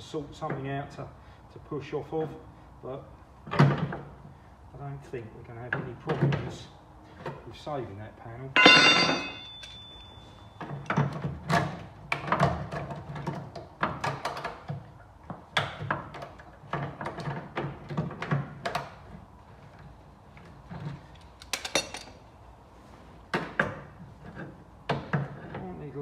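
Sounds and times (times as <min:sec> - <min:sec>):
metallic clicks and knocks: 0:20.8 - 0:22.2.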